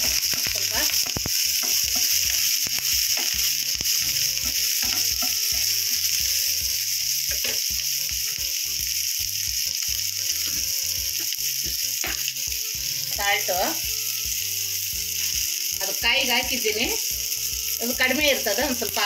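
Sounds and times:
food sizzling in hot oil: 0.0s - 19.0s
wooden spatula scraping a pan: 1.6s - 5.8s.

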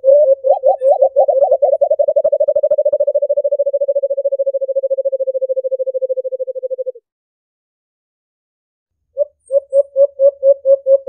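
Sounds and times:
dove cooing: 0.0s - 7.0s, 9.2s - 11.0s.

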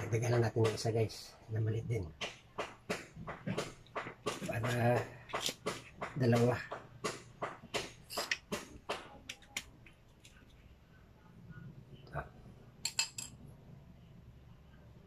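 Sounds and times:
metal tools clicking: 12.8s - 13.4s.

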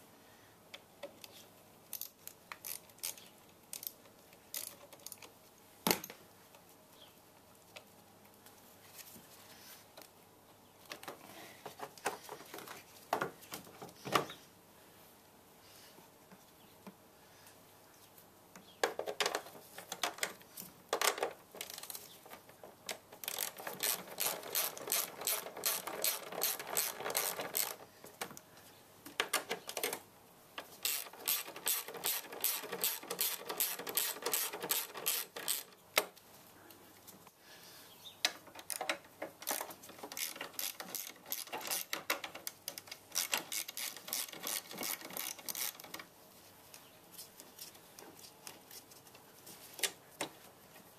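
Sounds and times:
socket ratchet clicking: 30.8s - 35.7s.

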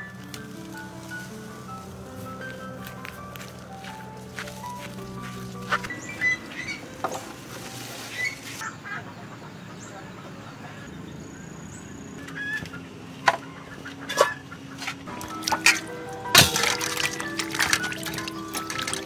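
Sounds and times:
leafy branches rustling: 0.0s - 8.8s, 14.0s - 19.0s.

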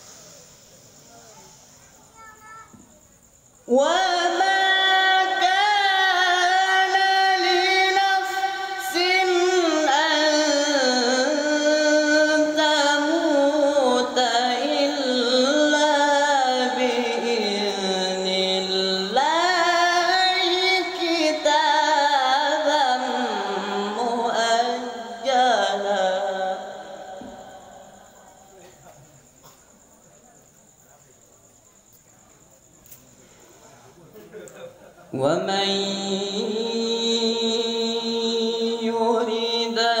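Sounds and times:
boy reciting melodically: 1.0s - 29.6s, 35.1s - 40.0s.

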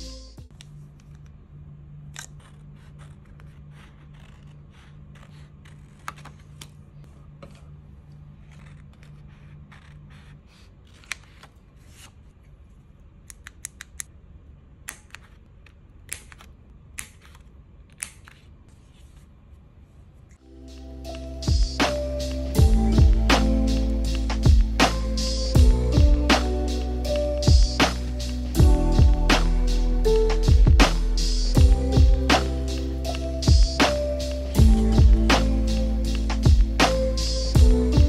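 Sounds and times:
scissors snipping paper: 2.1s - 6.8s.

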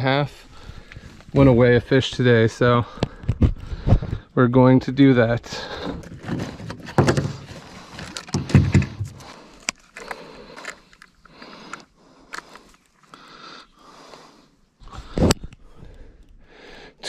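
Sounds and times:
rustling and scraping: 5.6s - 11.2s.

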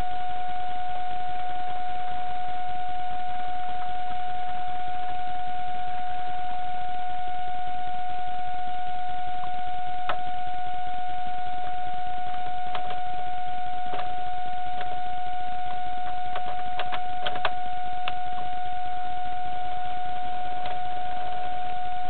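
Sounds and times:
high-pitched electrical hum: 0.0s - 22.0s
small clicks: 11.6s - 13.1s, 15.6s - 18.5s.

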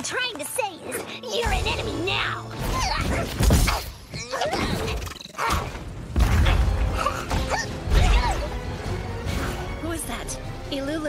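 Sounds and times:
dramatic background music: 0.0s - 11.0s.

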